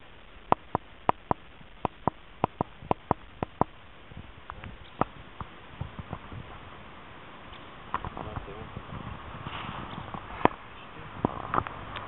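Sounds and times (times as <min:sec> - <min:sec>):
sharp clicks: 0:00.5 - 0:03.8.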